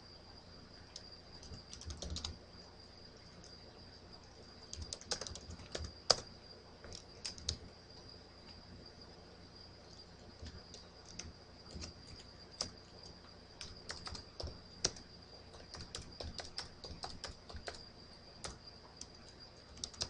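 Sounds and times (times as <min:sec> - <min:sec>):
faint high-pitched whine: 0:00.0 - 0:20.0
keyboard typing: 0:00.9 - 0:02.4, 0:04.6 - 0:07.6, 0:10.4 - 0:20.0.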